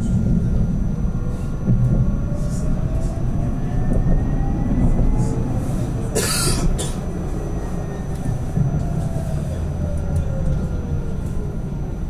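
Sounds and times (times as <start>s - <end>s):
tram rumbling: 0.0s - 12.0s.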